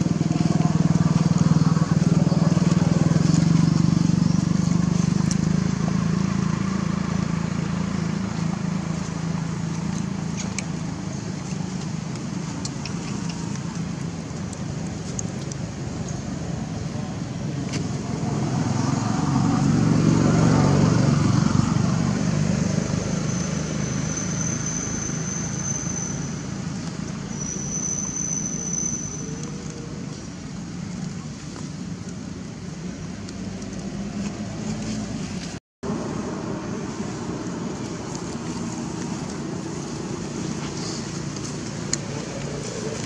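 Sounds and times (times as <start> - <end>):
motor vehicle passing by: 0.0 - 11.8, 16.1 - 27.3, 33.4 - 43.0
outdoor rumble: 0.0 - 43.0.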